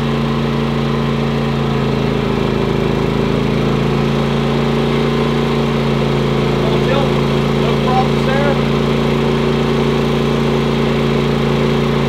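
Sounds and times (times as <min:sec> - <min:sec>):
generator engine running: 0:00.0 - 0:12.0.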